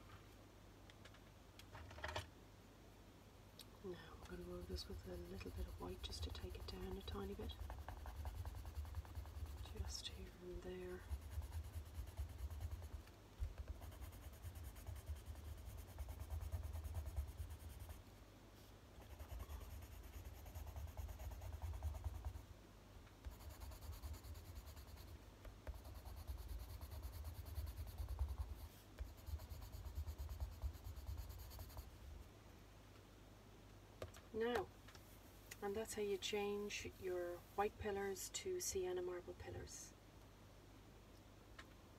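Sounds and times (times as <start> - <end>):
coloured pencil scribbling on paper: 4.1 - 18.0, 19.0 - 22.4, 23.2 - 31.9.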